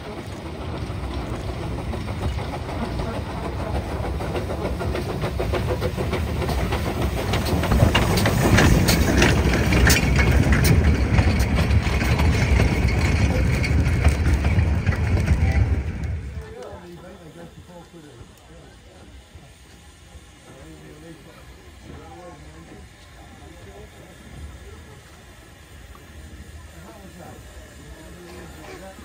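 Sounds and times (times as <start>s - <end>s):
wheels clicking over rail joints: 0.0s - 17.5s
steam train rumbling past: 0.0s - 29.0s.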